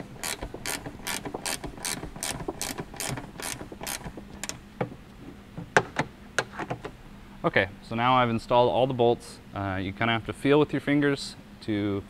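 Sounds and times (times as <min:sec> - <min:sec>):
ratcheting wrench clicking: 0:00.0 - 0:04.6.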